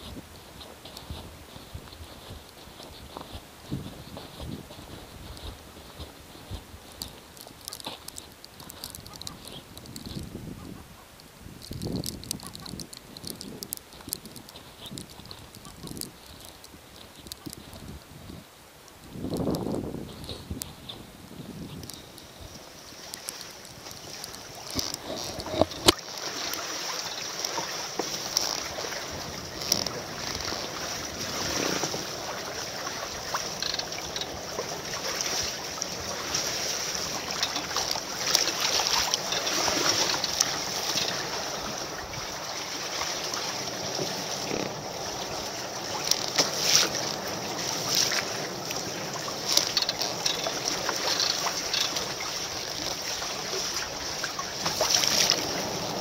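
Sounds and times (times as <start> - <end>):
wind on microphone: 0.0 - 22.8, 23.6 - 26.0
water splashing: 19.1 - 56.0
waves breaking against rocks: 21.8 - 56.0.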